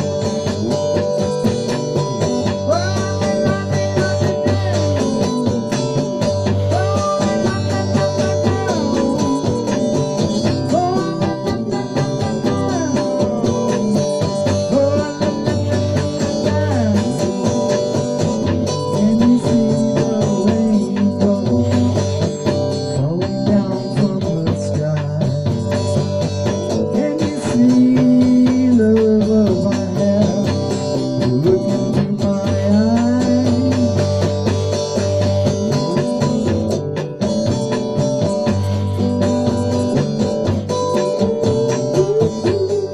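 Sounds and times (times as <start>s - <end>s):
electric guitar playing: 0.0s - 42.9s.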